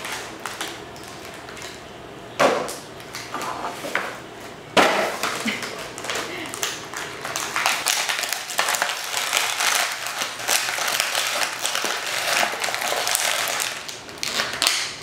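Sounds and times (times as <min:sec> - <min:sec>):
plastic bag crinkling: 0:05.2 - 0:15.0.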